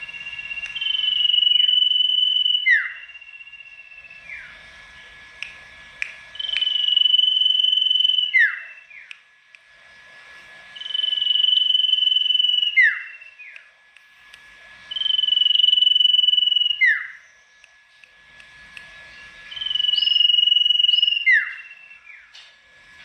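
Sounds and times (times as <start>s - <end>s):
songbird whistling: 0.0s - 4.6s, 6.3s - 9.2s, 10.8s - 13.7s, 14.9s - 17.7s, 19.0s - 22.4s.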